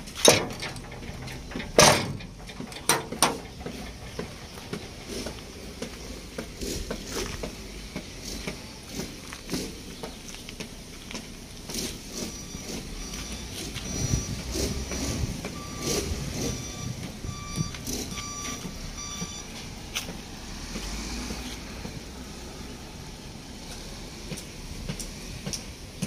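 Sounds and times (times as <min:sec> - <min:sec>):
metal panel knocking shut: 0:00.2 - 0:04.5
footsteps on gravel: 0:03.6 - 0:16.5, 0:17.6 - 0:22.0.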